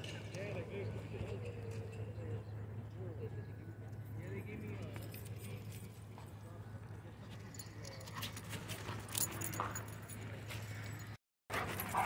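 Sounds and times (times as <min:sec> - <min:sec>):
light clinks and scuffs: 0:04.7 - 0:12.0.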